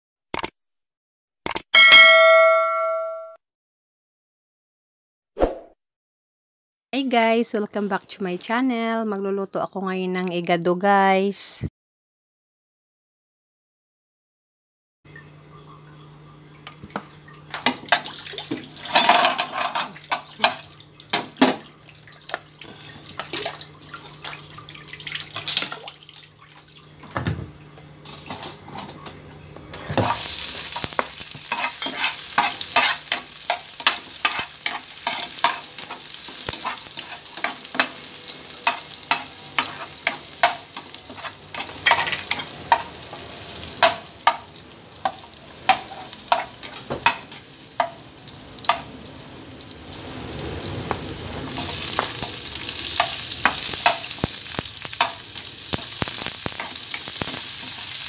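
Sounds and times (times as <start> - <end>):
garlic sizzling in hot oil: 17.1 - 27.0, 29.9 - 58.0
spoon scraping pan: 18.8 - 20.6, 29.8 - 48.0
spoon knocking in frying pan: 30.0 - 48.0, 53.0 - 57.9.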